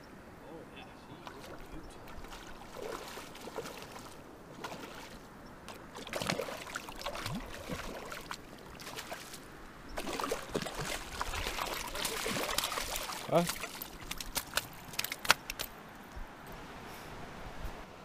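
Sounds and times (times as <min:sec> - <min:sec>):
fish splashing in water: 0:01.2 - 0:09.4, 0:10.0 - 0:15.4.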